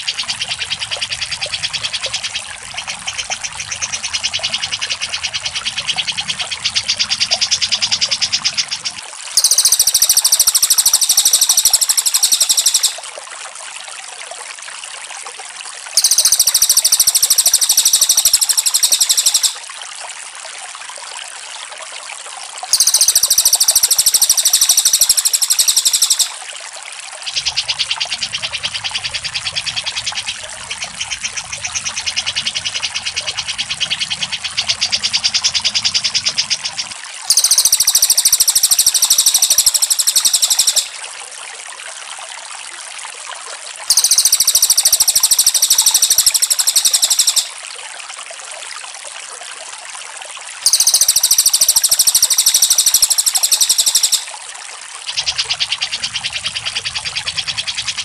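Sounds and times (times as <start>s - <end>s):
bird chattering trill: 0.0s - 13.0s, 16.0s - 19.6s, 22.7s - 26.4s, 31.1s - 41.0s, 43.9s - 47.5s, 50.6s - 54.3s, 55.1s - 58.0s
fast high bird trills: 5.2s - 13.0s, 16.0s - 19.6s, 22.7s - 26.4s, 35.2s - 41.0s, 43.9s - 47.6s, 50.6s - 54.3s.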